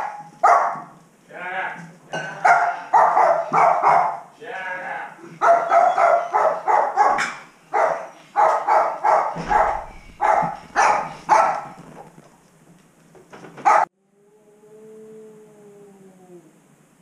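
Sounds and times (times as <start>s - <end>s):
dog barking: 0.0s - 1.0s, 2.4s - 4.3s, 5.4s - 11.8s, 13.6s - 13.9s.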